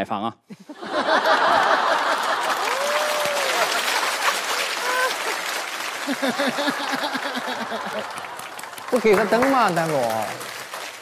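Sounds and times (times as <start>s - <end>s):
audience laughing: 0.6s - 8.9s
audience applauding: 0.9s - 11.0s.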